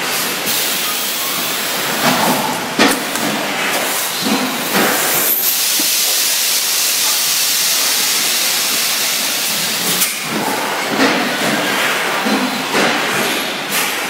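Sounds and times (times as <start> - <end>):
compressed air hissing: 0.1 - 9.8
machine clunks: 1.9 - 5.2.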